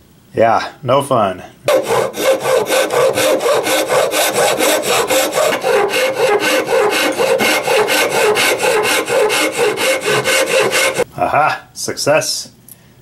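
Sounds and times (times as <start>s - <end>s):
saw cutting through wood: 1.7s - 11.0s.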